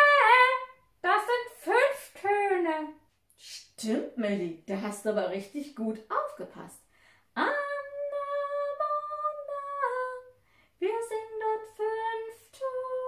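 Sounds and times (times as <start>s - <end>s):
woman singing wordless melody: 0.0s - 3.0s, 7.4s - 13.0s.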